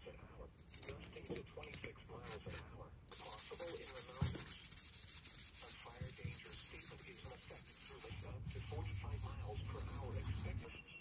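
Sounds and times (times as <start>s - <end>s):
scratchy rubbing on knife blade: 3.2s - 10.7s.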